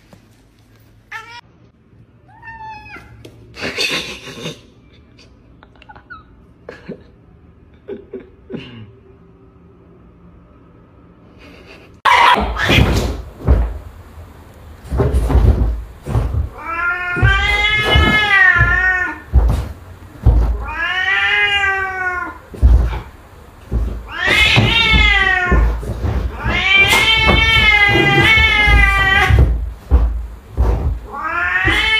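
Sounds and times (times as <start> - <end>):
cat yowling: 2.3 - 3.2, 12.1 - 12.8, 16.5 - 19.4, 20.5 - 22.4, 24.0 - 29.6, 31.1 - 31.9
knocks and bumps: 12.3 - 21.0, 22.5 - 31.9.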